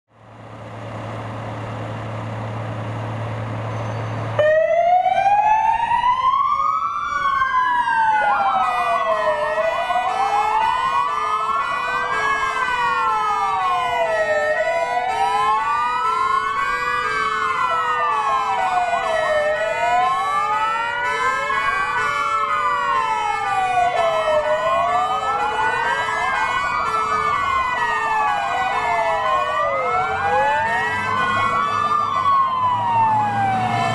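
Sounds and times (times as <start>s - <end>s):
sirens wailing: 0.6s - 33.9s.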